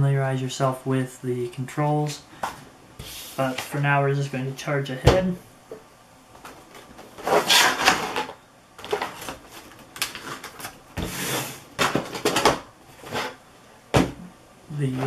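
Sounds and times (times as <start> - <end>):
plastic packaging rustling: 6.7 - 13.4.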